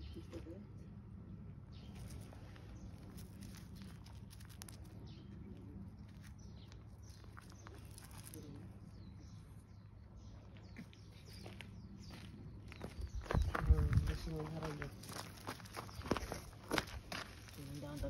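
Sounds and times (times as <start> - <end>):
footsteps on gravel: 1.9 - 5.2, 6.0 - 9.4, 10.5 - 18.0.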